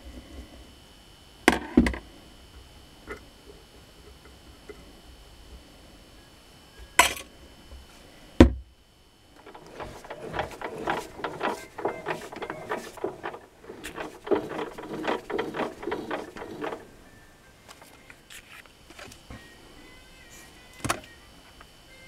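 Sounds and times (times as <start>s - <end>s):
lathe tool scraping metal: 9.4s - 17.0s.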